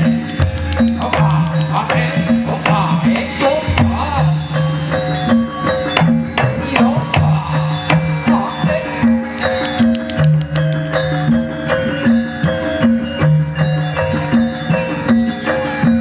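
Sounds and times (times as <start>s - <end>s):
hand drum strokes: 0.0s - 8.8s
gamelan music: 0.0s - 16.0s.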